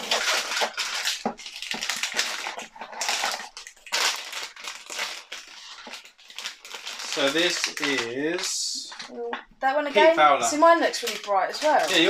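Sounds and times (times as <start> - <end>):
foil bags crinkling: 0.0 - 9.1, 10.5 - 12.0.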